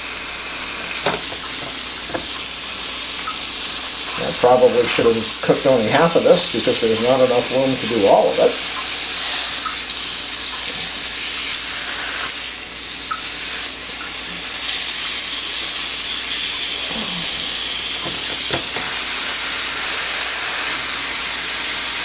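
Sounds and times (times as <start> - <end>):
meat sizzling on electric grill: 0.0 - 22.0.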